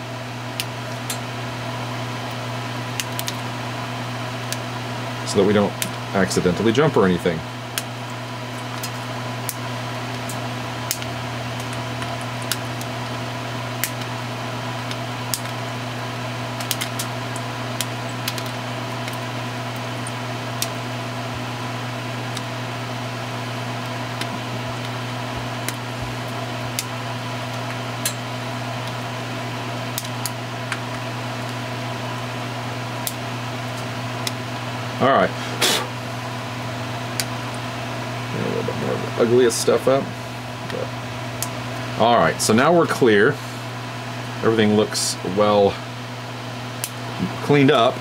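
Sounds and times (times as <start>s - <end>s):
steady electrical hum: 0.0s - 48.0s
flush cutters snipping wire: 3.0s - 3.4s, 8.6s - 12.9s, 13.8s - 14.2s, 14.8s - 15.6s, 16.6s - 20.8s, 23.8s - 29.0s, 29.9s - 31.6s.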